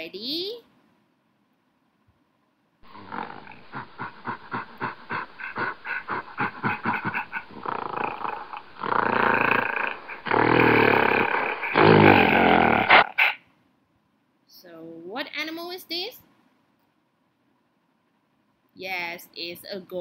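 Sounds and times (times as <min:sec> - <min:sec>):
gorilla calls: 0:02.8 - 0:13.4
gorilla roaring: 0:02.8 - 0:13.4.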